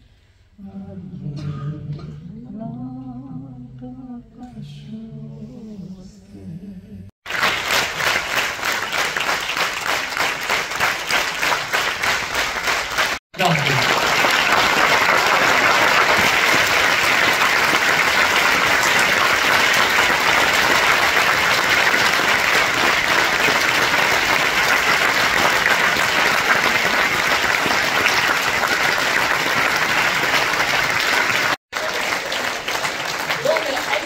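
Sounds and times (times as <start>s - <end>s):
large audience applauding: 7.2s - 34.0s.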